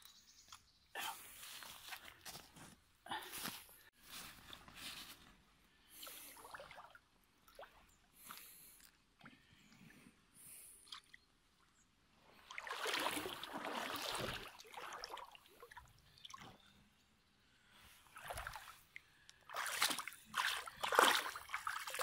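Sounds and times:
water sloshing and splashing: 6.0 - 9.9, 10.8 - 16.7, 18.0 - 22.0.

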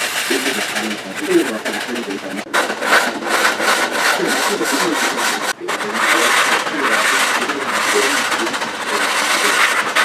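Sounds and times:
plane sole rasping on sandpaper: 2.5 - 8.4.

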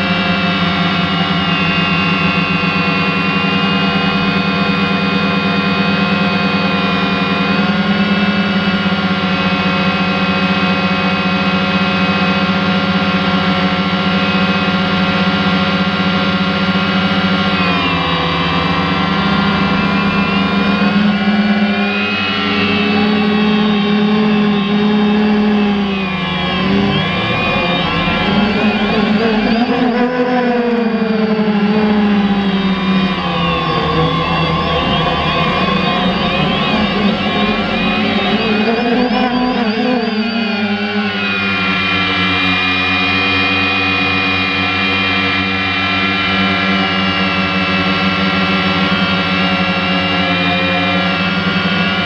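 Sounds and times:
drone propellers whirring: 0.0 - 52.0.

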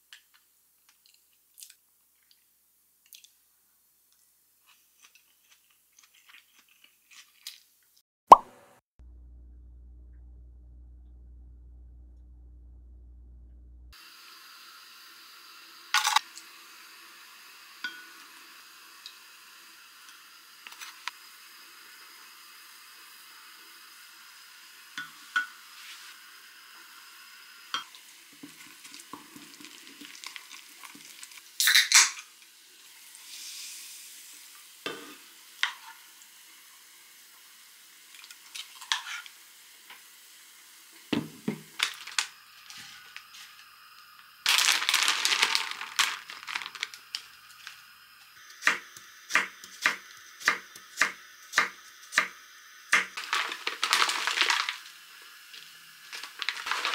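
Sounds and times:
knife chopping on wooden board: 48.6 - 52.3.

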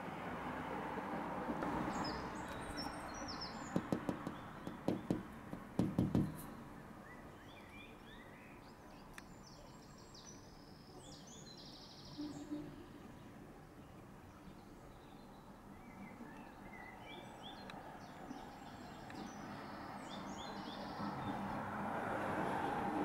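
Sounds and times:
small birds chirping: 1.9 - 21.6
sharp taps or knocks: 3.8 - 6.5.

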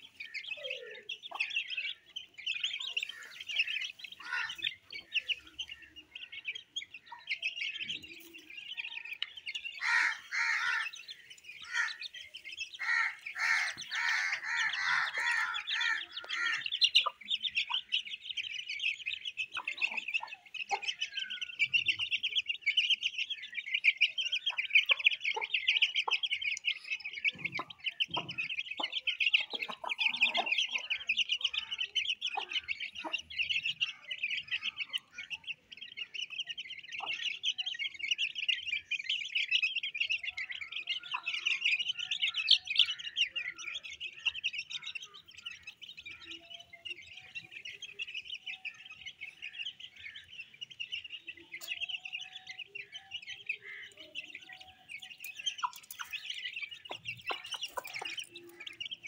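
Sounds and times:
chicks peeping: 0.0 - 59.0
hen clucking: 11.6 - 18.0, 19.5 - 21.0, 24.4 - 33.7, 53.6 - 59.0.

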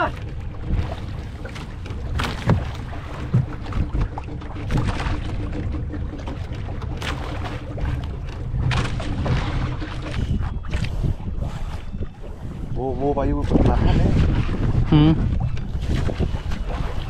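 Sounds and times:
water around boat: 0.0 - 17.0
wind on microphone: 8.6 - 17.0.

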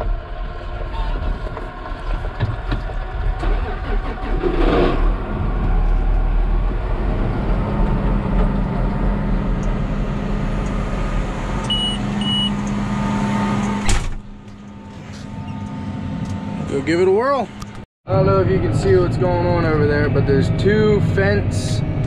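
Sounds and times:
tractor engine hum: 0.0 - 22.0
short electronic beeps: 11.7 - 12.6.

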